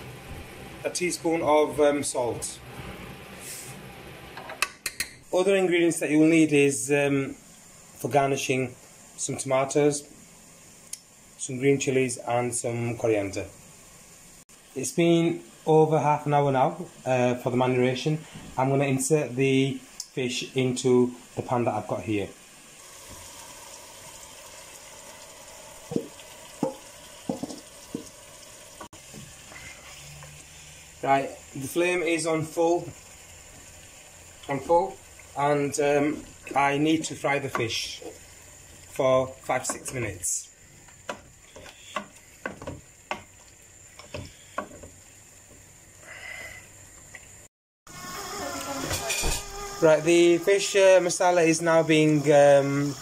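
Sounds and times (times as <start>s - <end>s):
oil and spices sizzling in a pot: 0.0s - 53.0s
wooden spoon knocking a pot: 25.9s - 28.1s, 41.0s - 43.3s.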